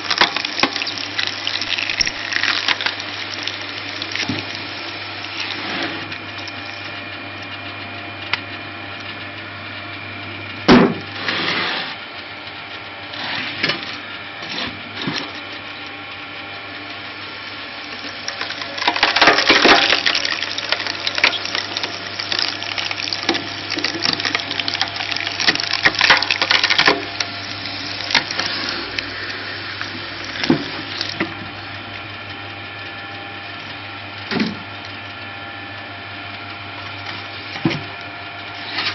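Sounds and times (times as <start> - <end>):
wood crackling and splintering: 0.0 - 7.0, 17.5 - 31.4
log splitter running: 0.0 - 38.9
loud wood crack: 18.4 - 27.3.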